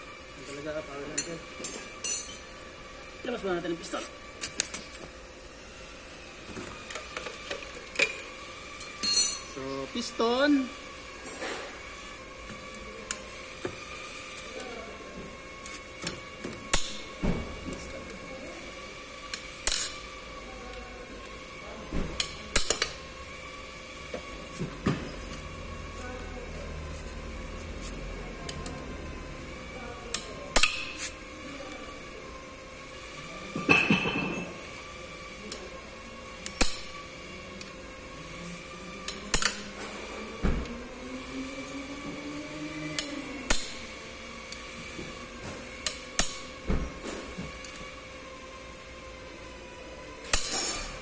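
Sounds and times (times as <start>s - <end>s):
tools clinking on metal: 1.2s - 2.4s, 8.8s - 9.5s.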